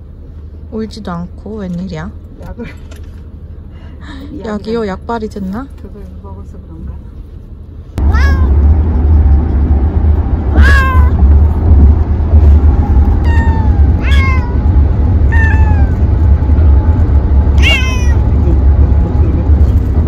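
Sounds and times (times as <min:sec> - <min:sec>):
steady low rumble: 0:00.0 - 0:20.0
cat meowing: 0:08.0 - 0:08.6, 0:10.5 - 0:11.2, 0:13.1 - 0:14.7, 0:15.3 - 0:16.1, 0:17.6 - 0:18.3.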